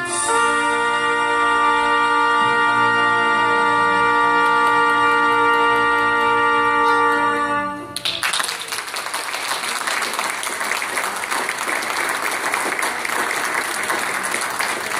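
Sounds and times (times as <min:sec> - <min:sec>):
trumpet note: 0:00.0 - 0:08.0
congregation applauding: 0:04.3 - 0:14.9.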